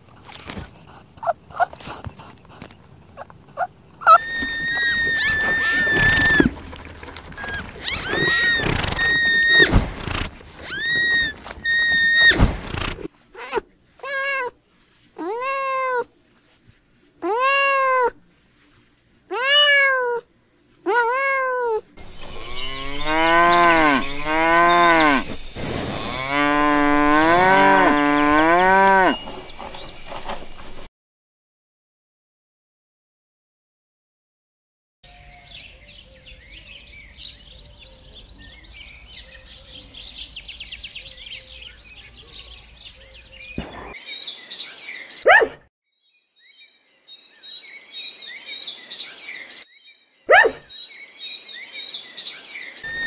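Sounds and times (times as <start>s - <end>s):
high thin squeaking calls: 0.2s - 6.5s, 7.4s - 14.5s, 22.0s - 26.4s
low wavering animal calls: 3.1s - 13.6s, 22.0s - 25.3s
rising and falling animal cries: 3.1s - 14.5s, 15.2s - 16.1s, 17.2s - 18.2s, 19.3s - 20.2s.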